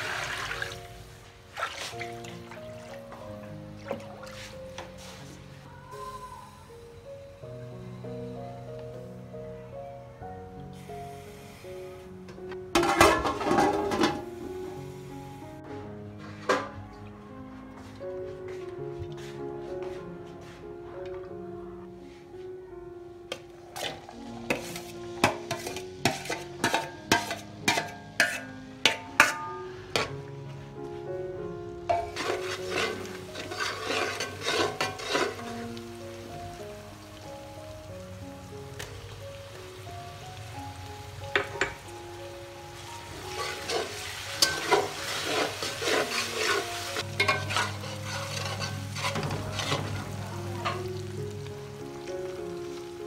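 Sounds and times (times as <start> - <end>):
onions sizzling in oil: 0.0 - 8.4, 10.7 - 12.2, 12.8 - 15.6, 23.3 - 30.4, 31.6 - 53.0
spatula scraping steel plate: 23.8 - 30.1, 31.9 - 35.6, 43.3 - 50.2.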